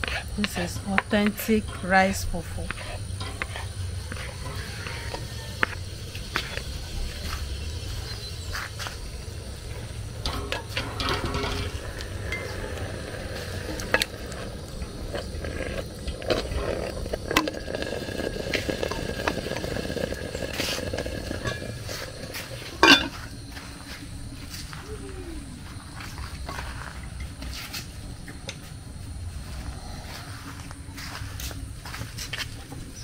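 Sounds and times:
utensil knocking and scraping a pot: 0:00.0 - 0:23.6.

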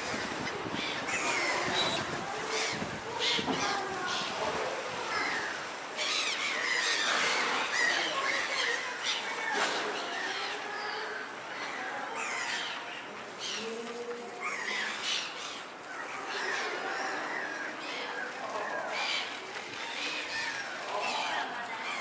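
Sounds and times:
seagulls squawking: 0:00.2 - 0:09.3.

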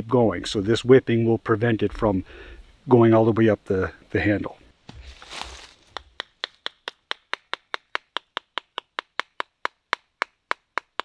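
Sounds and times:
brief rustle: 0:04.9 - 0:05.9.

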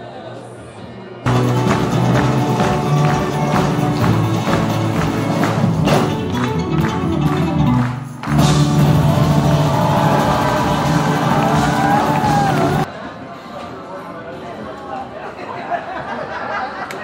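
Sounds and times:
live stage music with percussive beat: 0:01.3 - 0:12.9.

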